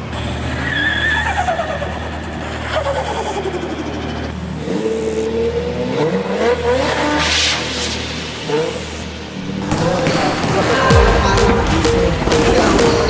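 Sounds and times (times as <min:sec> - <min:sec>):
shoes squeaking on court: 0:09.4 - 0:10.9.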